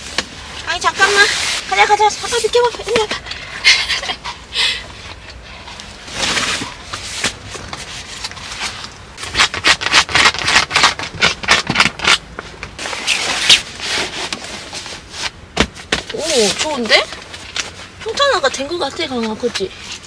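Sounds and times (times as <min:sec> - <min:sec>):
mats rubbing and rustling: 0:00.0 - 0:03.2, 0:05.5 - 0:10.6, 0:12.5 - 0:20.0.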